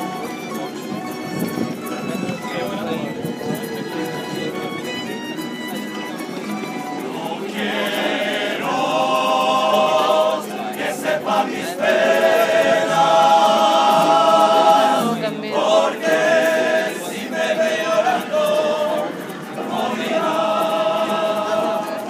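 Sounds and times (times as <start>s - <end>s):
men's chorus singing: 7.1s - 22.0s.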